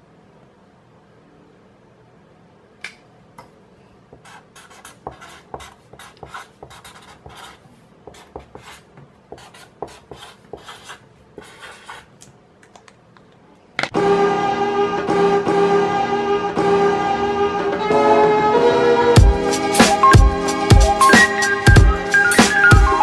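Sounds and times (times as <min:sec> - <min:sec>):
marker pen scratching on paper: 0:04.1 - 0:12.1.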